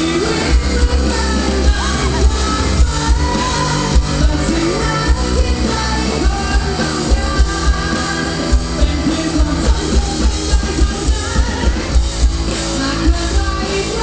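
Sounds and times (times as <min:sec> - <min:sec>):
man singing: 0:00.0 - 0:12.0, 0:12.8 - 0:14.0
live rock band playing: 0:00.0 - 0:14.0.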